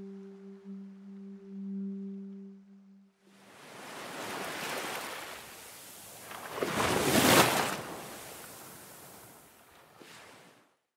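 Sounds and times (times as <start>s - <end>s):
ocean wave breaking: 3.4s - 10.6s.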